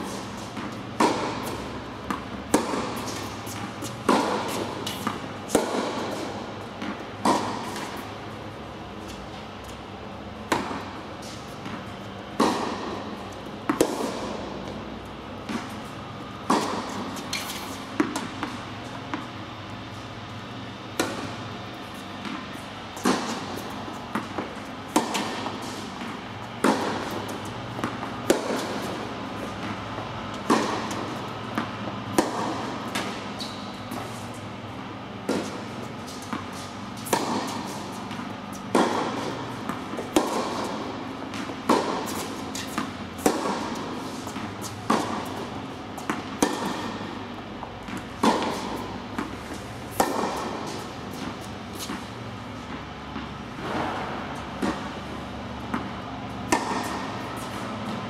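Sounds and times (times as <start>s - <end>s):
tennis ball bouncing: 0.0s - 58.0s
tennis balls struck by racquets: 0.0s - 58.0s.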